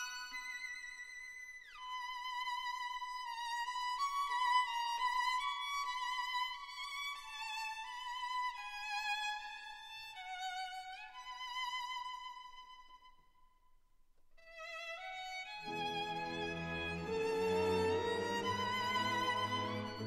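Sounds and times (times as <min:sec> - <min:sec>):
solo violin melody: 0:00.0 - 0:13.2, 0:14.4 - 0:20.0.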